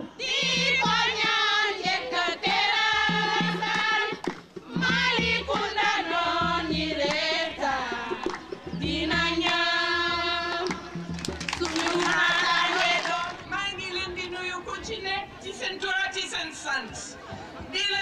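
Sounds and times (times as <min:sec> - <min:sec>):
woman singing: 0:11.6 - 0:15.8.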